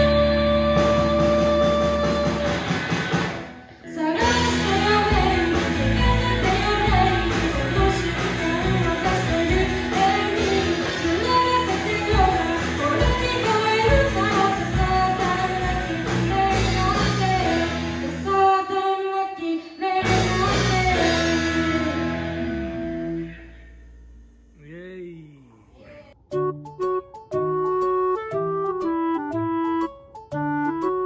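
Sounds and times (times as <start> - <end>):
person singing into a microphone: 0.0 - 2.7, 3.9 - 21.4
live rock band playing: 0.0 - 18.8, 19.9 - 24.0.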